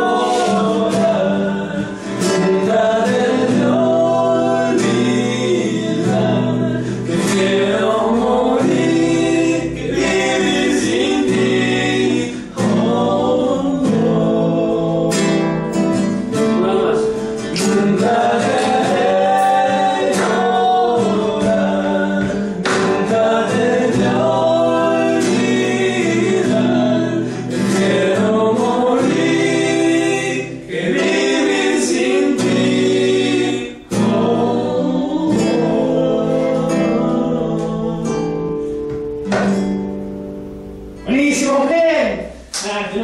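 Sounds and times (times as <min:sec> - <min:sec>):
men singing together: 0:00.0 - 0:39.0
strummed acoustic guitar: 0:00.0 - 0:43.0.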